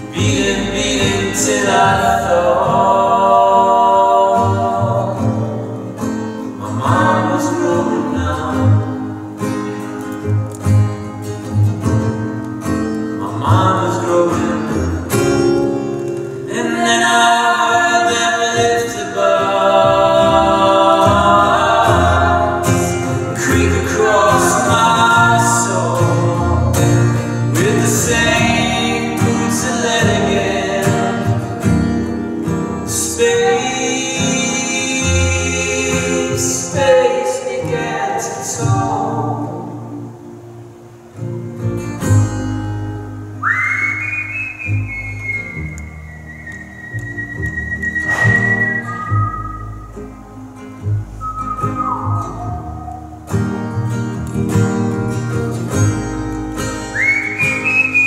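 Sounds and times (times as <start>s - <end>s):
plucked upright bass: 0.0s - 3.7s, 19.6s - 40.0s, 44.6s - 57.0s
man and woman singing: 0.0s - 5.7s, 6.5s - 9.2s, 13.2s - 15.1s, 16.5s - 31.7s, 32.9s - 40.1s
acoustic guitar: 0.0s - 58.0s.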